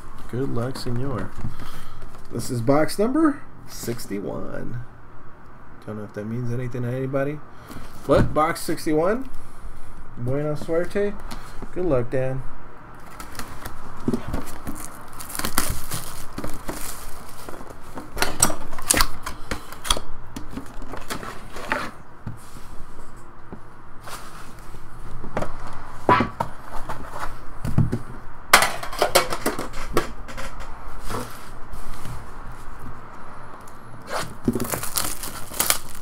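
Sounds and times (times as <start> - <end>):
plastic wrap crinkling: 13.0 - 19.2, 34.1 - 36.0.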